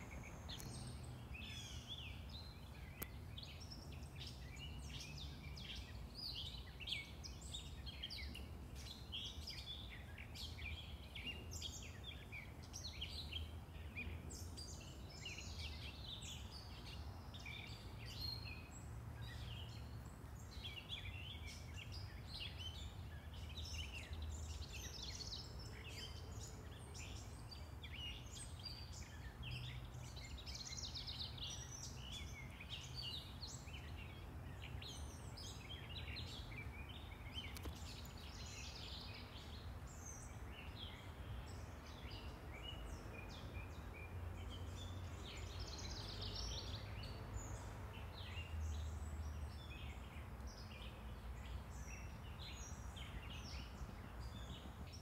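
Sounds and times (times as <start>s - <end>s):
distant traffic hum: 0.0s - 6.2s
birds singing and chirping: 0.0s - 55.0s.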